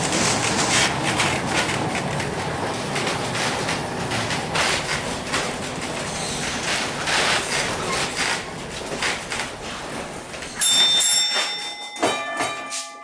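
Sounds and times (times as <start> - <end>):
streetcar rumbling on track: 0.0 - 11.5
streetcar bell ringing: 10.4 - 13.0.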